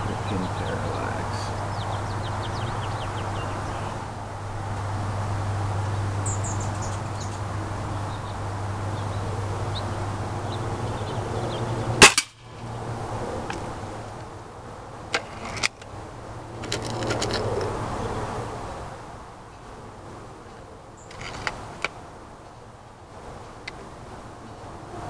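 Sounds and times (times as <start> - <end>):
air rifle shot: 12.0 - 12.5.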